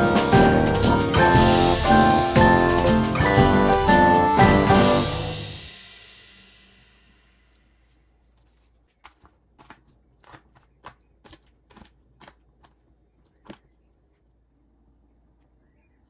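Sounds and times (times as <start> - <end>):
vegetable cubes clacking in plastic tub: 8.8 - 13.8.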